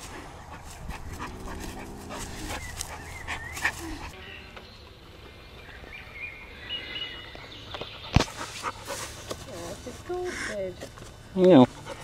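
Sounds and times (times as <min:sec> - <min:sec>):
dog snuffling and panting: 0:00.0 - 0:04.2, 0:07.7 - 0:10.7, 0:11.4 - 0:12.0.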